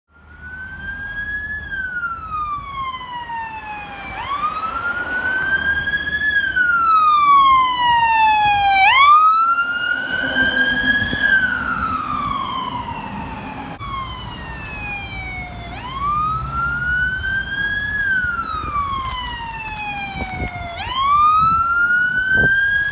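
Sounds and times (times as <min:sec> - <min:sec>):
fire truck siren wailing: 0:00.1 - 0:22.9.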